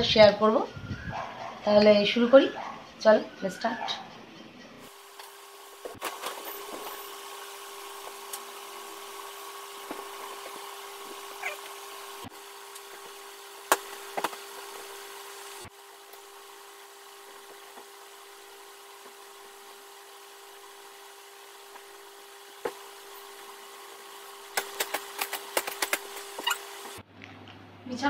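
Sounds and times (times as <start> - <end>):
steady mechanical hum: 0.0 - 28.0.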